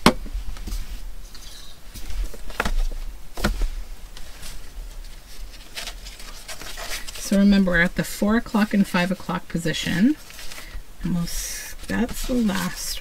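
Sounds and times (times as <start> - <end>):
hardcover book opening: 1.9 - 8.7, 11.7 - 13.0.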